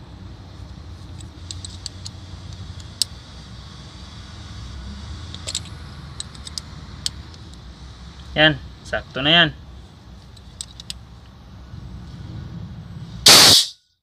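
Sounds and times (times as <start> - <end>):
low rumble: 11.4 - 13.3.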